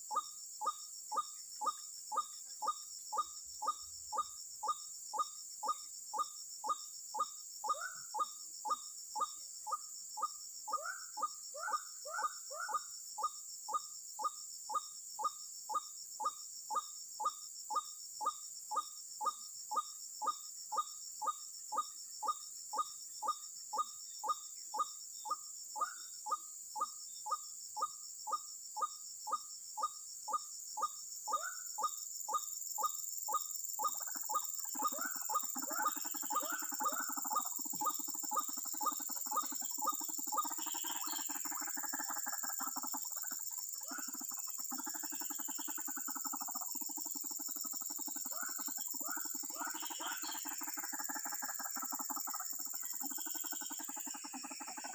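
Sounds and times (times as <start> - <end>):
waterhen croaking calls: 33.8 - 46.6.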